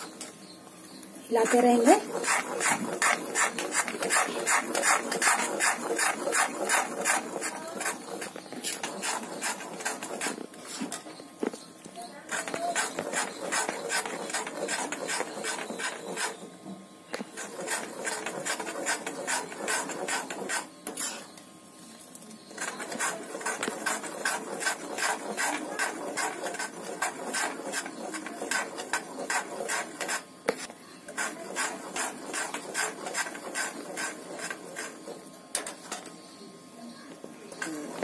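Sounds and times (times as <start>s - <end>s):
spoon scraping metal pan: 1.4s - 11.1s, 17.4s - 21.4s, 22.6s - 30.2s.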